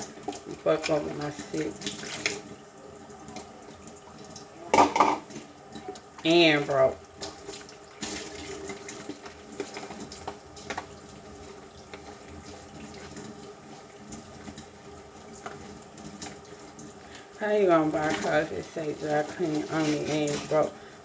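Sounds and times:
tap running into sink: 4.6s - 6.3s
dishes knocking against sink: 4.7s - 5.3s.

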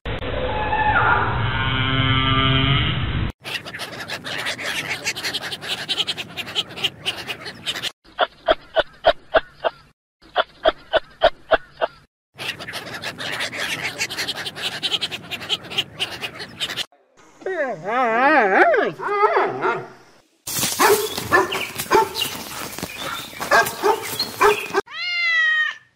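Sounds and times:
sea otters squealing: 3.4s - 7.9s, 12.4s - 16.9s.

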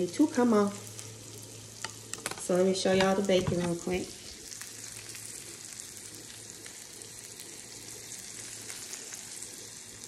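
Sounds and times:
bacon sizzling and popping: 0.0s - 10.0s.

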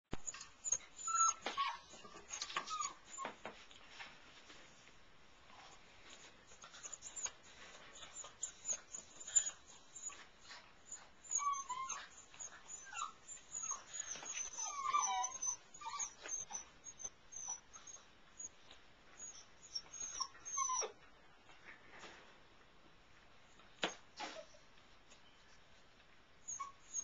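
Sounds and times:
puppies whining and squeaking: 0.2s - 3.5s, 5.6s - 21.1s, 26.4s - 27.0s.

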